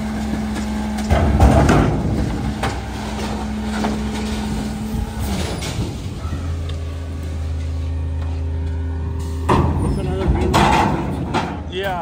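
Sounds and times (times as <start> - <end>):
diesel truck engine idling: 0.0 - 12.0
steel dumpster knocks: 0.2 - 6.6, 9.4 - 12.0.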